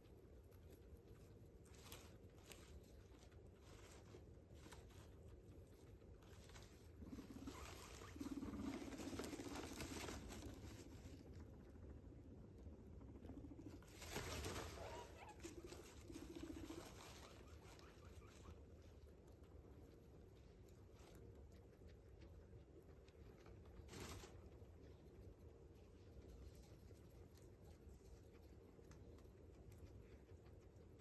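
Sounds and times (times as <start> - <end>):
guinea pigs rustling in bedding: 0.0 - 31.0
guinea pig buzzing calls: 6.1 - 19.0.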